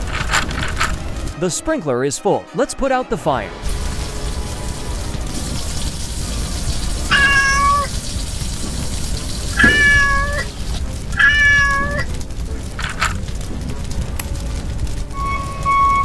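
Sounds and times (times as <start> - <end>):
kitten meowing: 7.1 - 7.9, 9.6 - 10.5, 11.2 - 12.1
steady low rumble: 12.1 - 16.0.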